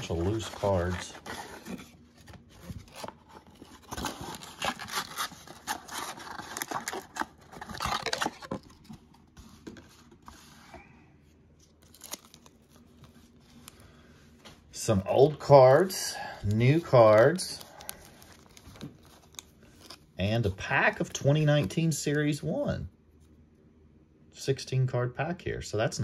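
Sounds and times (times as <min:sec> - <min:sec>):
cardboard box and cards handled: 0:00.0 - 0:10.8, 0:16.5 - 0:22.0.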